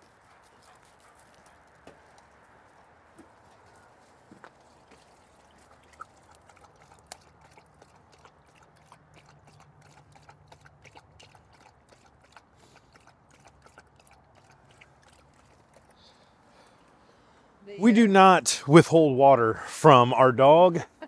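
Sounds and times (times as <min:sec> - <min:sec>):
dog lapping water: 0:04.5 - 0:16.2.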